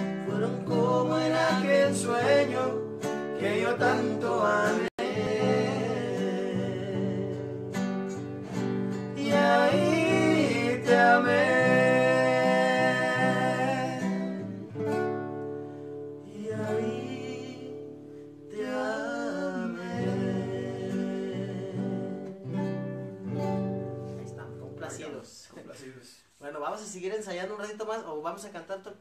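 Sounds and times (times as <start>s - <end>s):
man singing a slow ballad: 0.0s - 7.6s, 9.2s - 14.6s, 16.2s - 17.9s, 18.5s - 22.2s
acoustic guitar: 0.0s - 29.0s.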